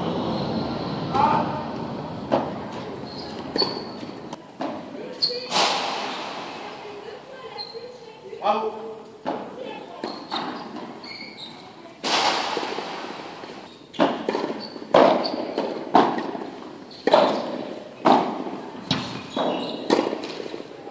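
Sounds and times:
padel ball hit with rackets: 0:05.5 - 0:06.7, 0:12.0 - 0:16.5, 0:17.1 - 0:20.6.

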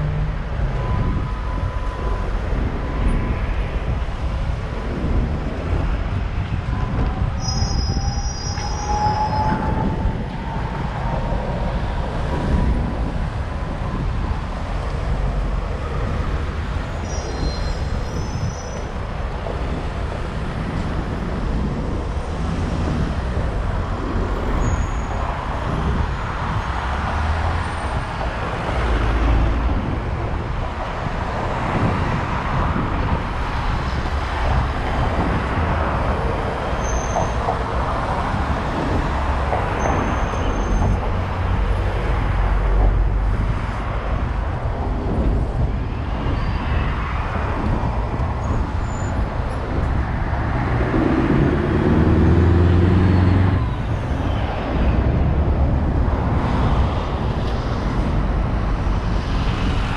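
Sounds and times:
passing cars: 0:00.0 - 0:59.9
loud engine passing close: 0:50.4 - 0:53.8.

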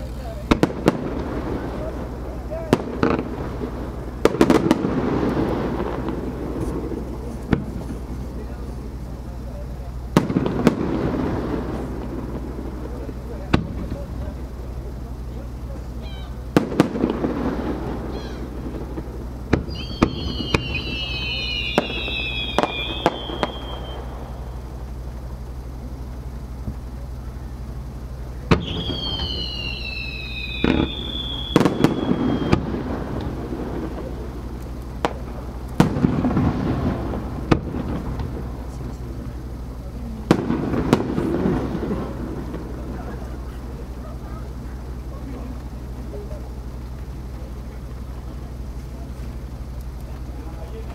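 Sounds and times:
fireworks bursting: 0:00.0 - 0:50.9
fireworks crackling: 0:00.0 - 0:50.9
descending firework whistle: 0:16.0 - 0:25.0, 0:28.3 - 0:39.0.

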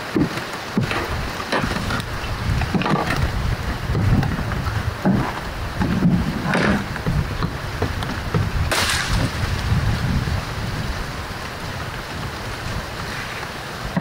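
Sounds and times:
wind buffeting microphone: 0:00.0 - 0:14.0
palm fronds being cut: 0:08.7 - 0:09.4.

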